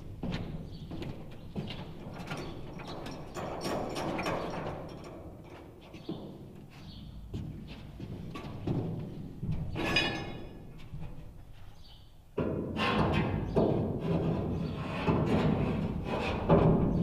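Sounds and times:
footsteps on steel floor: 0.0 - 17.0
tools clanking: 9.7 - 10.9.

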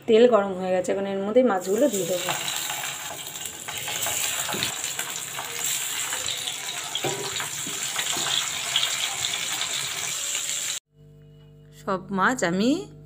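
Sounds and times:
fish sizzling in hot oil: 1.6 - 10.8.

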